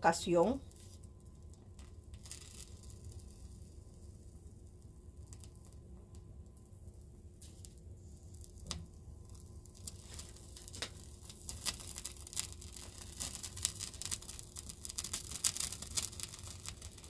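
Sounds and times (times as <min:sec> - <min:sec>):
paper burning and crackling: 0:00.1 - 0:17.0.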